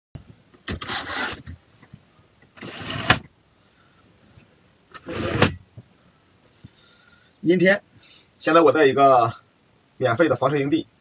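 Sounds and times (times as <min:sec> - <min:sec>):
window blind sliding swish: 0:00.8 - 0:01.4, 0:02.6 - 0:03.2, 0:05.0 - 0:05.5.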